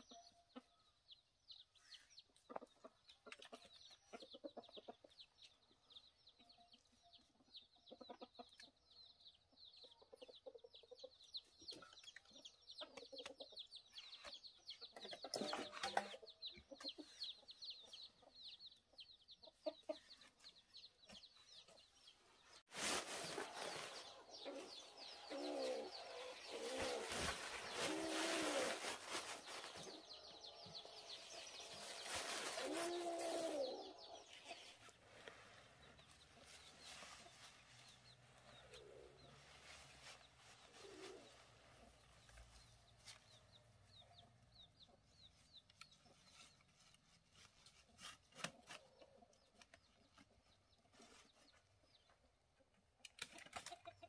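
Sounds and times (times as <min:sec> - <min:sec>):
chickens clucking and squawking: 0:00.0 - 0:46.7, 0:47.5 - 0:54.0.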